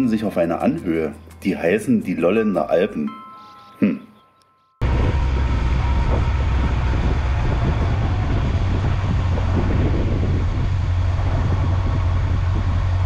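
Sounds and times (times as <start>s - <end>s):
motorcycle engine drone: 4.8s - 13.0s
road noise: 4.8s - 13.0s
rushing wind: 4.8s - 13.0s.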